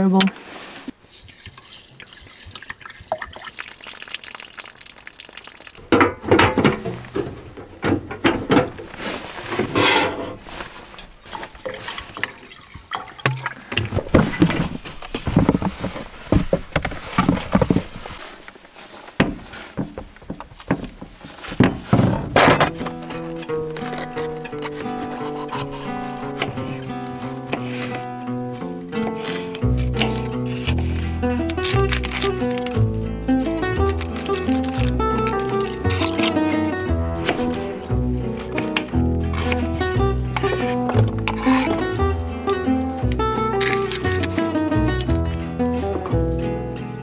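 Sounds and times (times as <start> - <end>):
water pouring into saucepan: 1.2 - 5.8, 11.3 - 13.8
pan and bottle clattering: 5.8 - 18.2, 21.5 - 25.1, 33.6 - 46.6.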